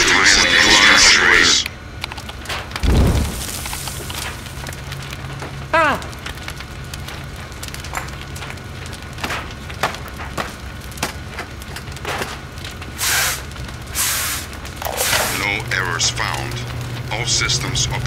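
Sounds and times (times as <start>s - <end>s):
fire crackling and popping: 0.0s - 18.0s
steady low hum: 0.0s - 18.0s
hissing rushes: 2.8s - 4.7s, 12.9s - 15.7s.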